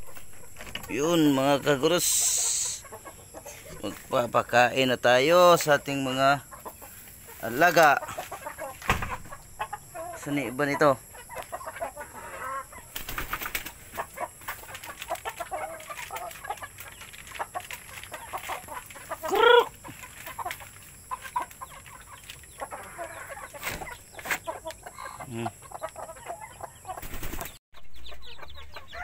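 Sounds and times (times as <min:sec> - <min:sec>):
chickens clucking: 0:00.0 - 0:29.0
rustling: 0:13.0 - 0:24.5
chicken call rising and falling: 0:19.1 - 0:19.9.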